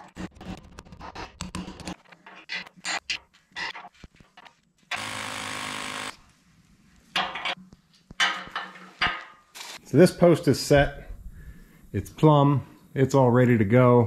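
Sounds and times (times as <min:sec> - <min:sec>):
hammer drill drilling into concrete: 0:04.9 - 0:06.2.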